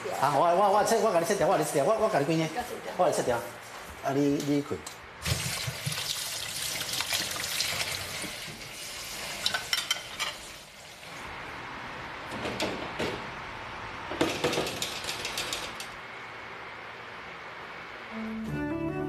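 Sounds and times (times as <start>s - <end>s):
tap water running into colander: 5.2s - 9.7s
kitchen handling clicks and knocks: 14.2s - 15.8s.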